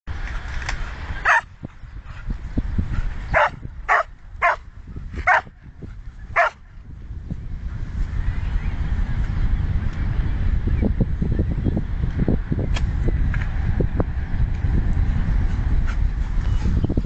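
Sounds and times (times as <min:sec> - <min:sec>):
dog barking: 0:01.2 - 0:01.4, 0:03.4 - 0:04.6, 0:05.3 - 0:05.5, 0:06.4 - 0:06.6.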